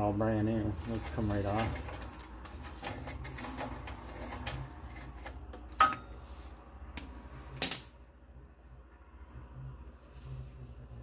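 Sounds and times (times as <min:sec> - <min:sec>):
metal tools and nuts clinking: 0:00.4 - 0:06.2, 0:07.5 - 0:08.0.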